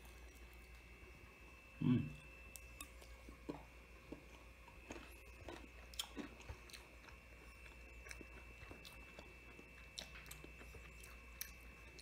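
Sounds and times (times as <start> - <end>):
chewing crispy food: 2.4 - 12.0.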